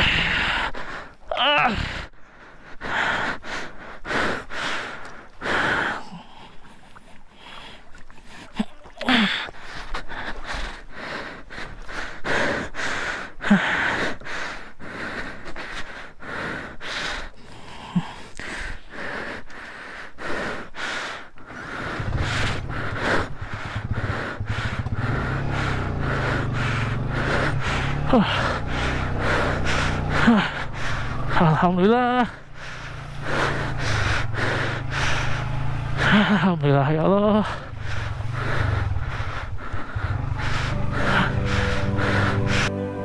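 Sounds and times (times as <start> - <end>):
person breathing heavily with gasps: 0.0 - 42.8
motorcycle engine hum: 21.4 - 43.0.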